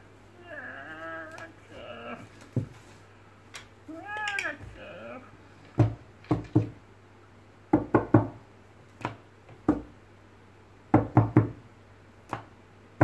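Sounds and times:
knocks on wooden desk: 5.8 - 6.8.

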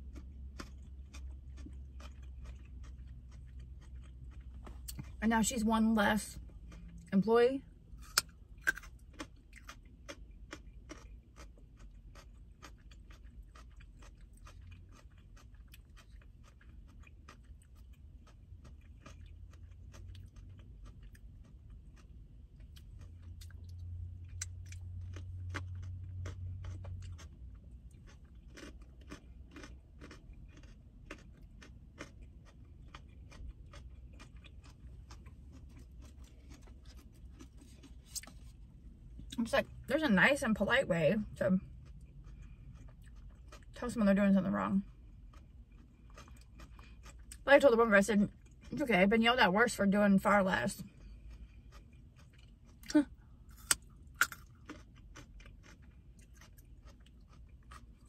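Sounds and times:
carrot crunching: 0.0 - 7.1, 7.9 - 39.4, 50.9 - 58.0.

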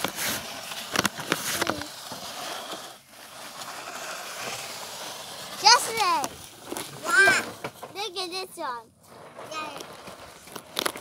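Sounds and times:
steady scraping hiss: 0.0 - 11.0.

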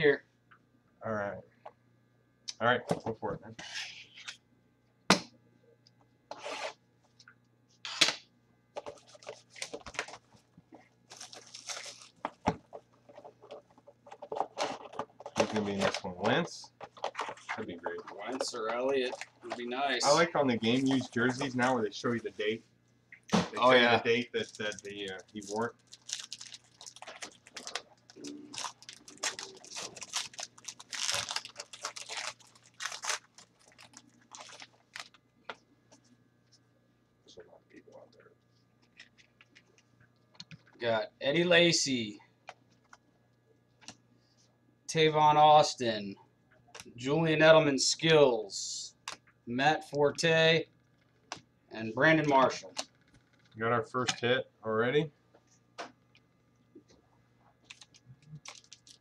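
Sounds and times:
packaging crinkling and rustling: 8.8 - 21.9, 24.1 - 35.2, 57.6 - 59.0.

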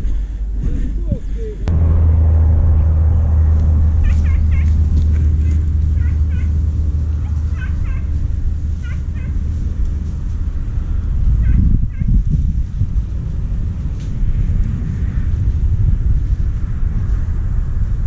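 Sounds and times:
steady low rumble: 0.0 - 18.0
dogs yelping: 7.2 - 9.4, 11.4 - 12.1.

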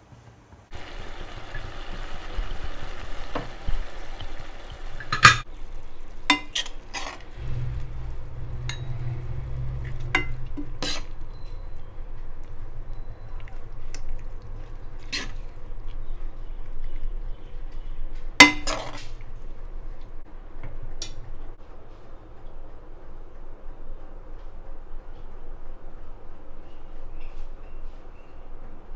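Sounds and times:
gravy sizzling: 0.7 - 16.1
ladle scraping and stirring in pan: 4.9 - 11.9, 13.8 - 16.0.

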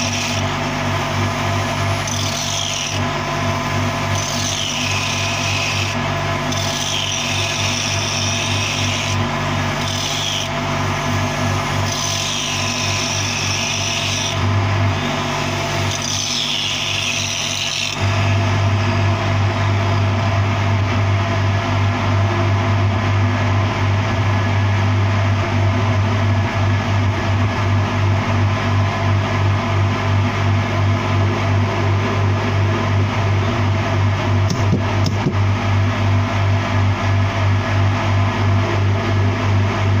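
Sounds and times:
angle grinder grinding steel: 0.0 - 18.8
steady low hum: 18.0 - 40.0.

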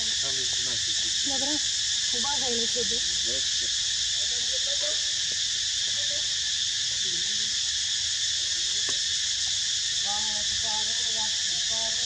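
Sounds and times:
insect chorus droning: 0.0 - 12.0.

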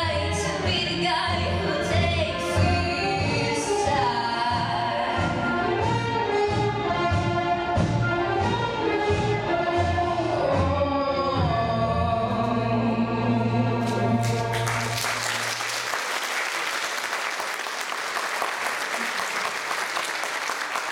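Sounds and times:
woman singing: 0.0 - 5.5
instrumental accompaniment: 0.4 - 15.8
audience applause: 14.1 - 20.9.

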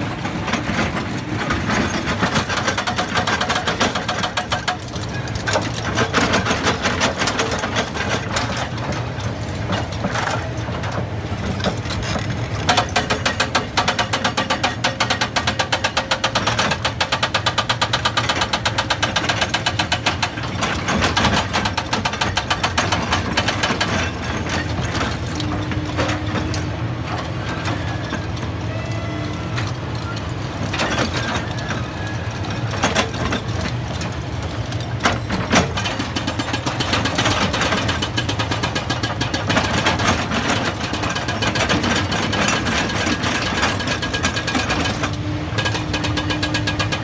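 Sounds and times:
diesel engines humming: 0.0 - 47.0
hydraulic breaker hammering rock: 0.4 - 9.0, 11.5 - 28.2, 35.0 - 47.0.

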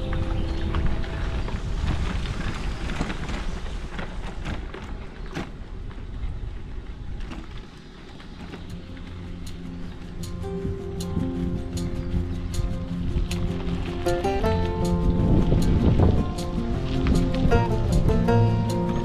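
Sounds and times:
bike knocking over bumps: 0.0 - 9.2
bike tyres crunching on gravel: 0.0 - 19.0
wind rumbling on microphone: 0.0 - 19.0.

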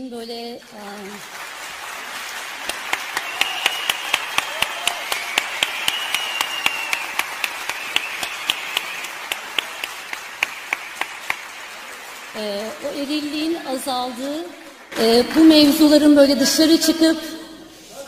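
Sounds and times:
audience applauding in a hall: 0.6 - 16.1
close person clapping steadily: 1.1 - 12.9.

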